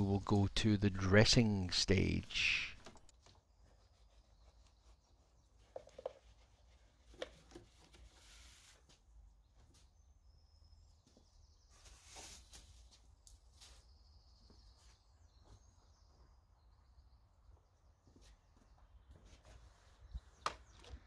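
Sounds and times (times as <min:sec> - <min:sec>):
faint high bird chirps: 0:03.2 - 0:06.2, 0:09.3 - 0:21.0.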